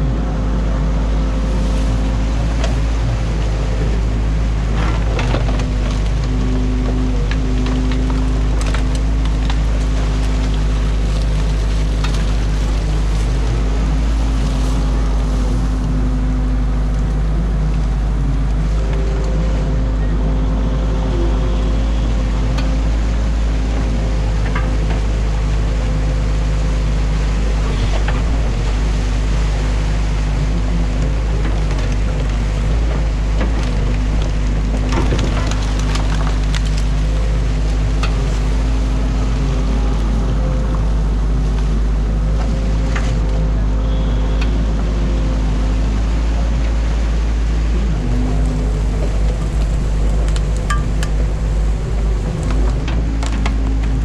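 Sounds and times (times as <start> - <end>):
diesel engine and hydraulics: 0.0 - 54.0
water rushing: 0.0 - 54.0
wood knocking and cracking: 31.4 - 38.6, 49.1 - 54.0.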